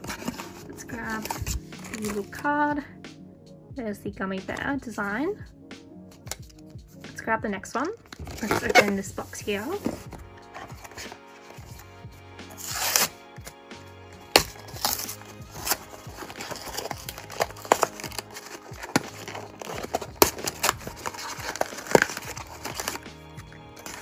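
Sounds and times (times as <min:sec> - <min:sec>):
soft background music: 0:00.0 - 0:24.0
cardboard tearing: 0:08.1 - 0:09.0, 0:12.5 - 0:13.2, 0:14.3 - 0:24.0
cardboard box ripped open: 0:12.5 - 0:13.1, 0:14.3 - 0:23.0.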